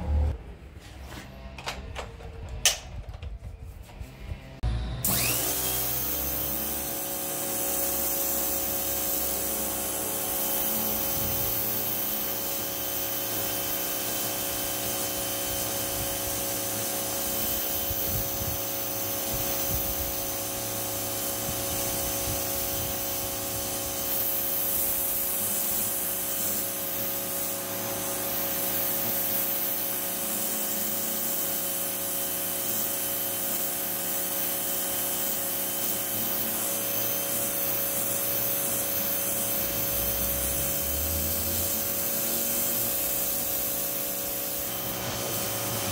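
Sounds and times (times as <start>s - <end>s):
pressure washer motor whine: 4.6s - 29.2s, 35.4s - 45.9s
water jet hissing on concrete: 5.1s - 45.9s.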